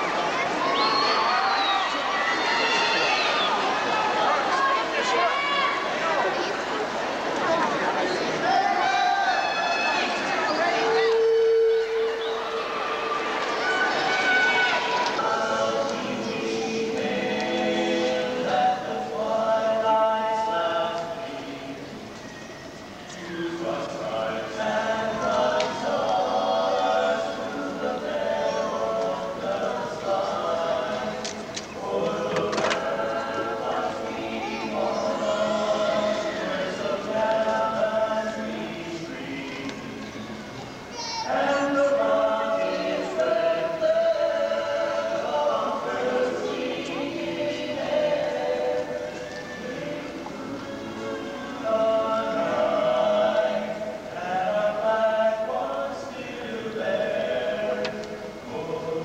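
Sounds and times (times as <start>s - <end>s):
vocal ensemble singing in harmony: 3.2s - 59.0s.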